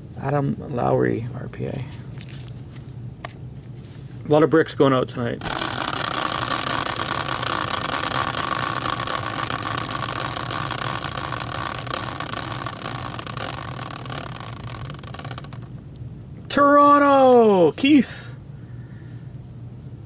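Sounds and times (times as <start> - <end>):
caster wheel whirring: 5.4 - 15.8.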